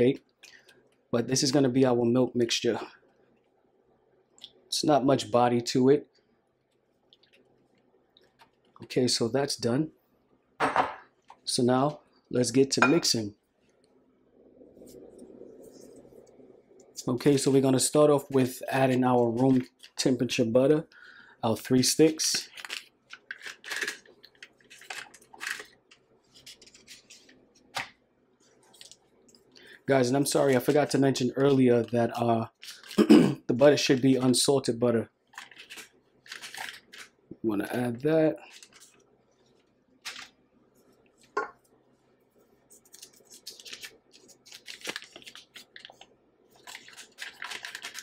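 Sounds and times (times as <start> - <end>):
paper wrappers rustling: 21.7 - 29.0, 30.0 - 34.4, 35.3 - 37.2, 38.4 - 40.4, 42.7 - 48.0.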